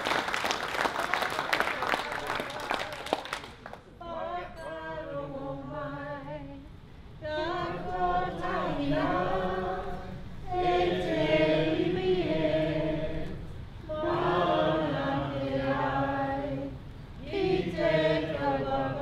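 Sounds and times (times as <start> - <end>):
group singing unaccompanied: 4.0 - 6.6, 7.2 - 19.0.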